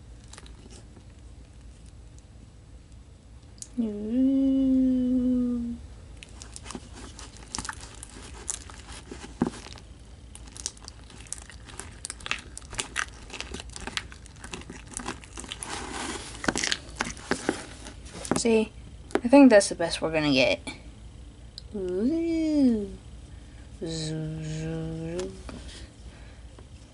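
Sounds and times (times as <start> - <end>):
person humming: 3.6 - 5.8, 23.8 - 25.4
sticky slime clicks and crackles: 9.6 - 15.6.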